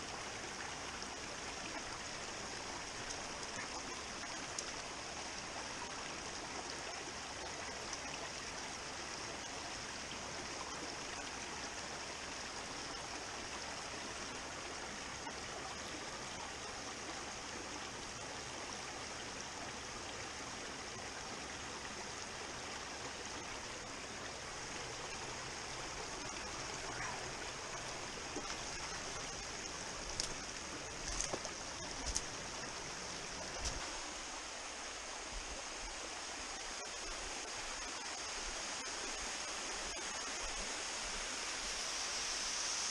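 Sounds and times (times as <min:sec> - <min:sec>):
stream rushing over stones: 0:00.0 - 0:42.9.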